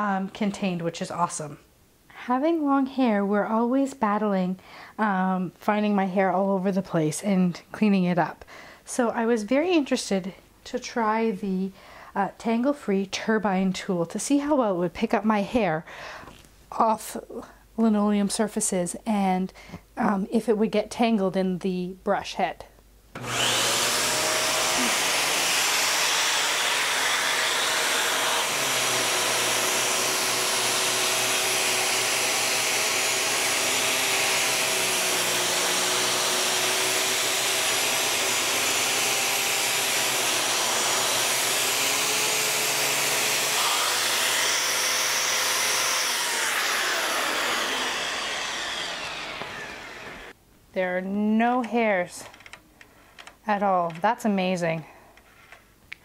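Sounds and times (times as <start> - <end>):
vacuum cleaner whining: 23.2 - 50.4.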